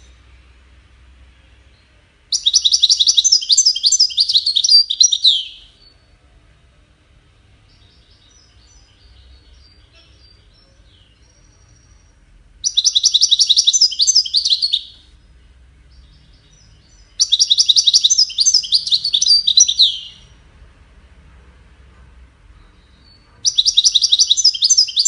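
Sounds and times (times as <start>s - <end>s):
goldfinch singing: 2.3s - 5.9s, 12.6s - 15.0s, 15.9s - 20.4s, 22.8s - 25.0s.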